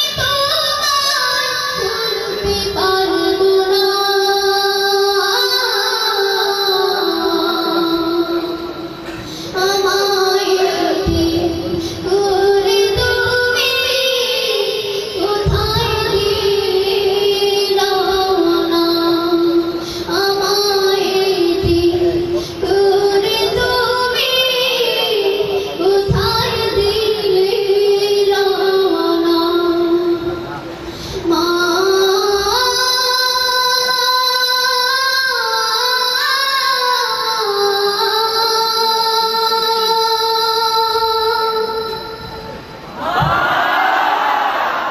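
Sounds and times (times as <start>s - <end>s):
boy singing into a microphone: 0.0s - 43.4s
short breaths: 9.0s - 9.6s, 19.8s - 20.1s, 30.7s - 31.2s.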